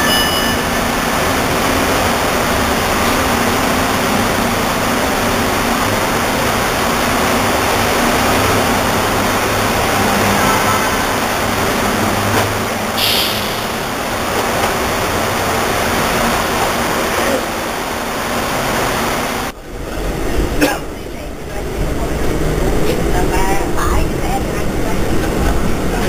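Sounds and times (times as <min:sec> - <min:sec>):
monorail train rushing noise: 0:13.0 - 0:14.8.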